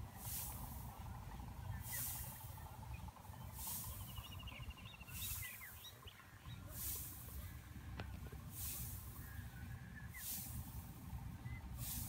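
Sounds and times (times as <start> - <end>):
low wind rumble: 0.0 - 12.0
soft hissing bursts: 0.0 - 12.0
bird chirping: 1.4 - 6.9.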